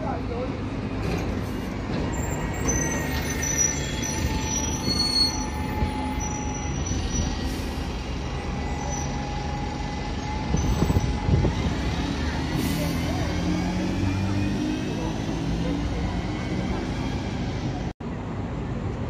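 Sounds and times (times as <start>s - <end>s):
bus engine rumble: 0.0s - 19.0s
high-pitched squealing tones: 2.1s - 11.3s.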